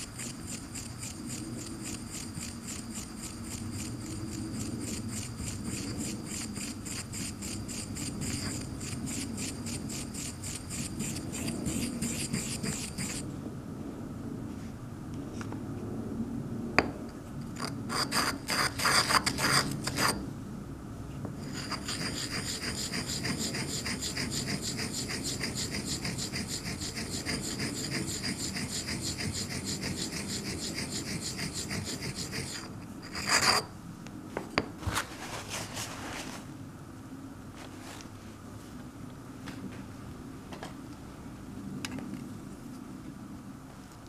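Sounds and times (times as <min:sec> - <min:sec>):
ink stick grinding on inkstone: 0:00.0 - 0:13.2, 0:17.6 - 0:20.2, 0:21.4 - 0:33.7.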